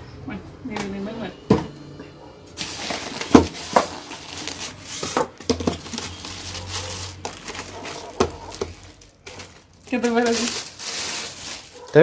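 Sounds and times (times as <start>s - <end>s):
styrofoam and plastic wrap crinkling: 2.5s - 12.0s.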